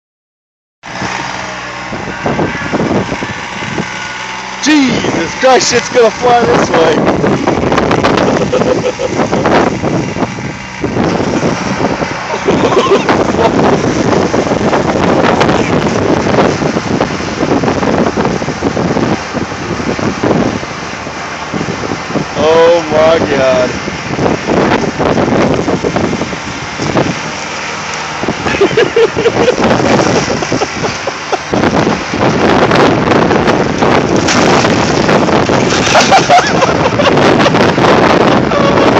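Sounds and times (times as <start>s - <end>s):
riding mower engine running: 0.8s - 38.9s
wind buffeting microphone: 0.8s - 38.9s
branches cracking and snapping: 33.8s - 36.6s.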